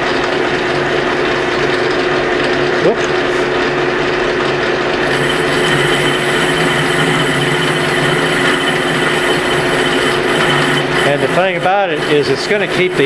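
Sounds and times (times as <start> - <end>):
metal lathe humming: 4.9 - 13.0
thin high whine: 5.0 - 13.0.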